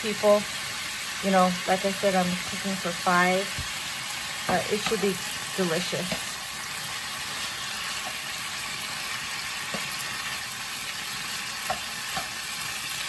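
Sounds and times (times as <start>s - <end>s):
chicken sizzling in frying pan: 0.0s - 13.0s
spatula tapping pan: 7.9s - 8.3s, 9.6s - 10.0s, 11.6s - 12.4s.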